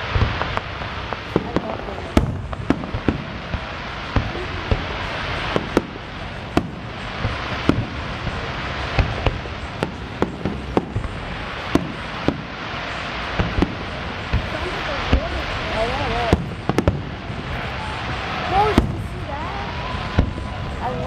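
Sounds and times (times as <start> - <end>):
steady hiss: 0.0 - 21.0.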